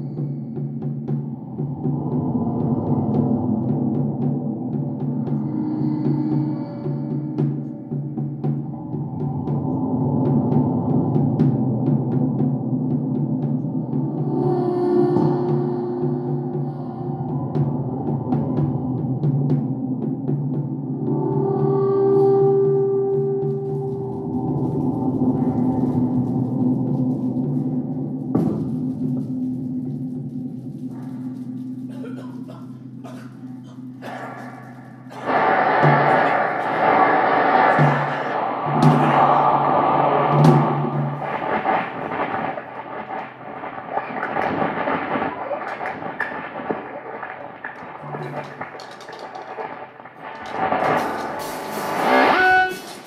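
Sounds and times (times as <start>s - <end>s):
sustained low drone tones: 0.0s - 53.0s
experimental noise music: 20.9s - 53.0s.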